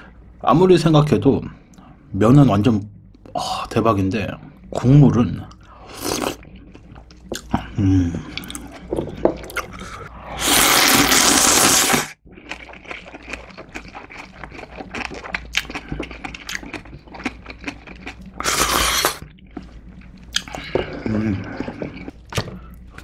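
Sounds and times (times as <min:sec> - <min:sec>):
slurping broth: 0:05.7 - 0:23.0
person slurping noodles: 0:05.8 - 0:06.4, 0:09.4 - 0:17.3, 0:18.0 - 0:19.2
wet chewing: 0:11.8 - 0:23.0.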